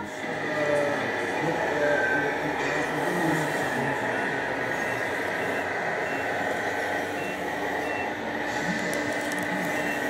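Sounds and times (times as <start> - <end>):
model trucks running: 0.0 - 10.0
reversing beeper: 1.8 - 3.2, 4.4 - 8.3, 9.4 - 10.0.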